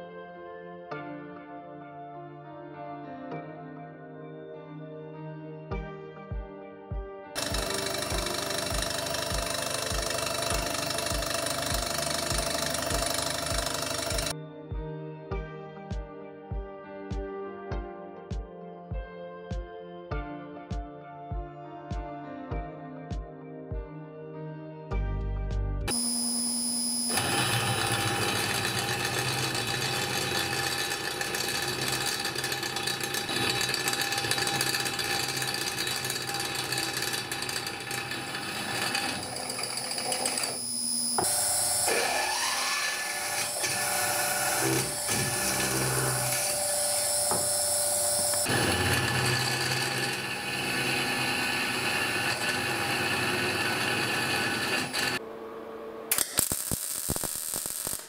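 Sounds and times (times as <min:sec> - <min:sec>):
drill boring into steel: 0:07.4 - 0:14.3, 0:25.9 - 0:55.2
welding crackle: 0:56.1 - 0:58.0.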